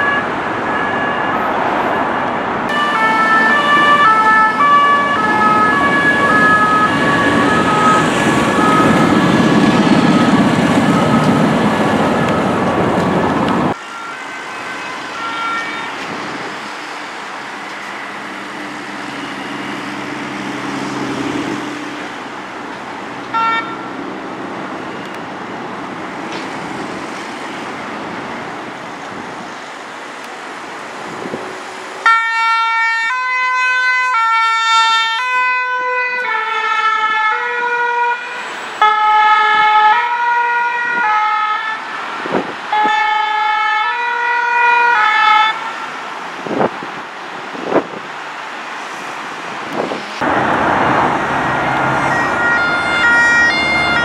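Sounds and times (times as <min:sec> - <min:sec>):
two-tone ambulance siren: 0:00.0 - 0:22.6, 0:23.3 - 0:24.0, 0:32.0 - 0:46.0, 0:50.2 - 0:54.0
motorway traffic: 0:00.0 - 0:54.0.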